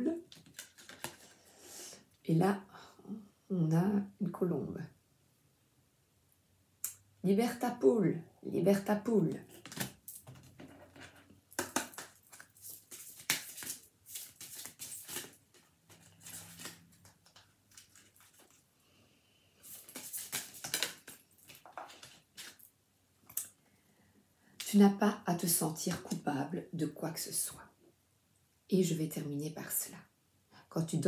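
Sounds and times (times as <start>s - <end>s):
cards being shuffled: 0.2s - 1.4s, 9.5s - 18.6s, 19.6s - 22.7s.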